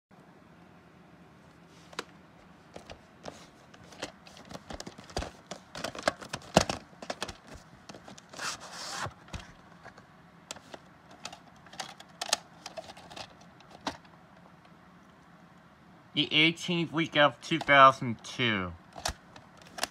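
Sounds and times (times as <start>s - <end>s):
tape sliding out of case: 2.8s - 13.3s.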